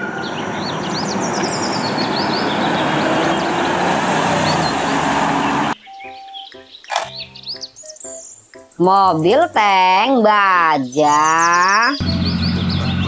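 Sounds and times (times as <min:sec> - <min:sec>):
vehicle driving past: 0:00.0 - 0:05.8.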